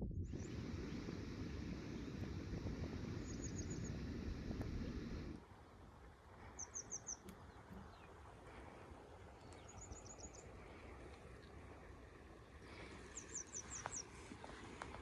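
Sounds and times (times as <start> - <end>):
wind rumbling on microphone: 0.0 - 15.0
small bird chirping: 3.1 - 5.2, 6.5 - 8.2, 9.4 - 10.6, 13.1 - 14.2.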